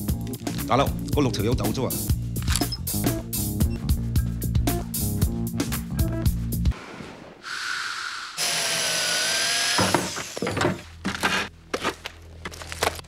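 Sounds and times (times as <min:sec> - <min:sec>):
power drill whining: 0:07.5 - 0:10.8.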